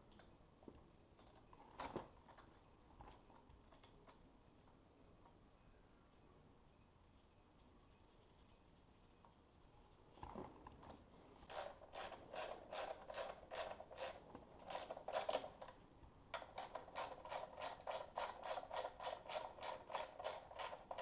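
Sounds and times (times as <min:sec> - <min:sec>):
ratchet wrench clicking: 0:11.5 - 0:15.4, 0:16.6 - 0:21.0.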